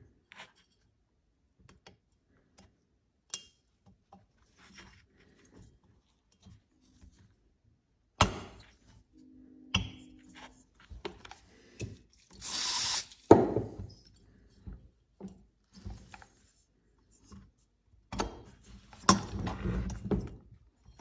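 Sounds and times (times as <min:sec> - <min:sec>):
loud hissing burst: 0:12.4 - 0:13.1.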